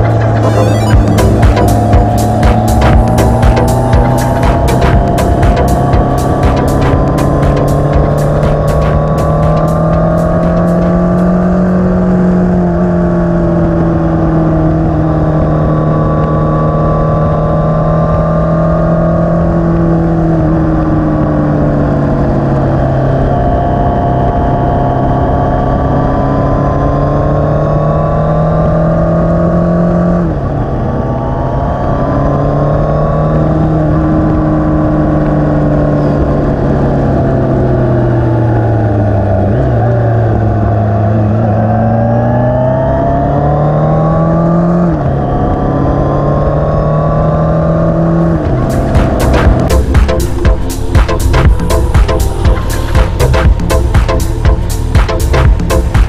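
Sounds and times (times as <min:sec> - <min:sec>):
motorcycle engine running: 0:00.0 - 0:27.2, 0:46.8 - 0:56.0.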